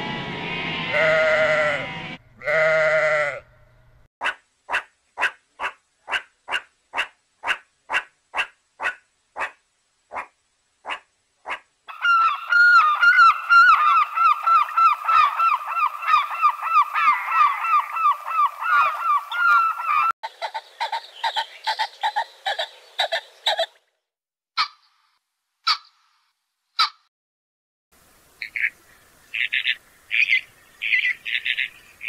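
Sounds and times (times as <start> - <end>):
lemur yapping calls: 4.2 - 23.8, 24.6 - 24.8, 25.6 - 26.0, 26.8 - 27.1, 29.3 - 31.8
peacock calling: 10.9 - 23.8, 25.6 - 26.1, 28.4 - 32.0
gulls calling in chorus: 11.9 - 23.7.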